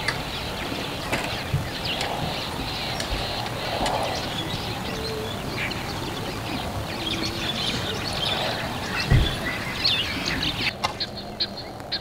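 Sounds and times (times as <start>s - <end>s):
background hiss: 0.0s - 12.0s
small birds chirping: 0.0s - 12.0s
low thump: 9.1s - 9.4s.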